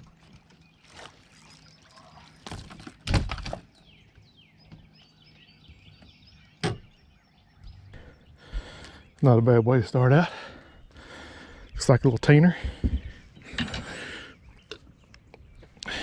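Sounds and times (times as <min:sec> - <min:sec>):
birds chirping: 0:00.0 - 0:16.0
landing net thudding on boat deck: 0:02.4 - 0:03.8.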